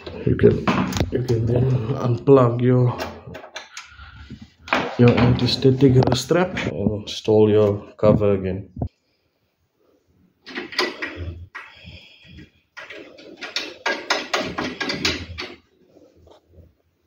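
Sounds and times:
metal clicks scrapes and knocks: 10.4 - 11.8, 12.7 - 15.7.

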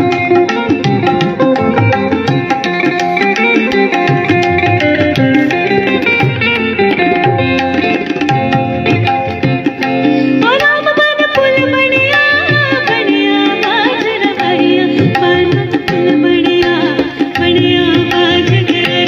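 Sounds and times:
percussion and melodic accompaniment: 0.0 - 19.0
woman singing: 10.4 - 19.0.

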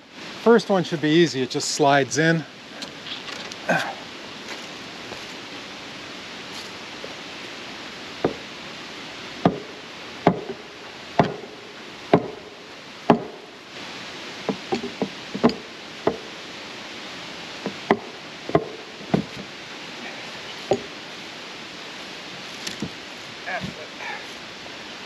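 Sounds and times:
sledgehammer striking timber plank: 9.4 - 10.6, 11.2 - 12.5, 13.1 - 13.4, 17.7 - 19.3.

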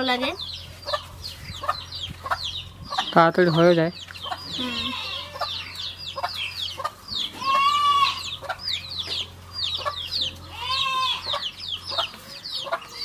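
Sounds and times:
chickens clucking: 0.0 - 13.0
high chick peeps: 0.0 - 13.0
long drawn-out chicken calls: 4.2 - 13.0.

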